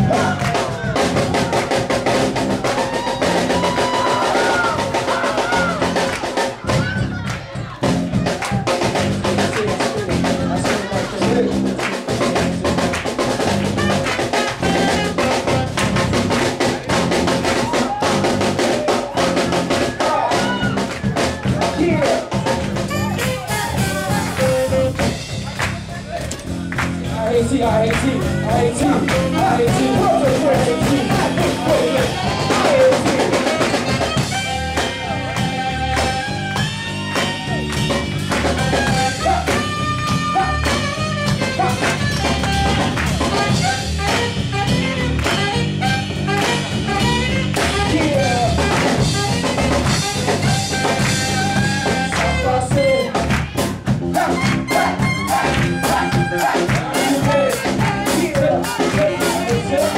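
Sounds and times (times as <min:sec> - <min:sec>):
drum kit: 0:00.0 - 0:59.9
live jazz band playing: 0:00.0 - 0:59.9
saxophone long held notes: 0:22.9 - 0:25.4, 0:29.2 - 0:53.3, 0:54.2 - 0:58.8.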